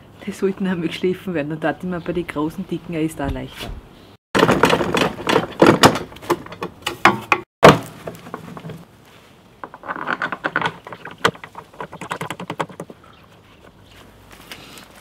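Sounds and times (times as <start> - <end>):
plastic knocks and rattles: 4.4 - 8.8, 9.6 - 13.0.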